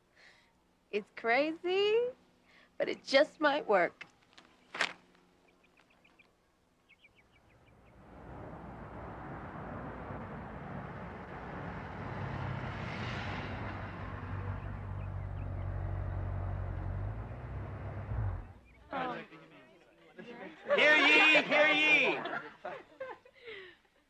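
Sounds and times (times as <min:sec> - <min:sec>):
car driving by: 0:07.2 - 0:19.0.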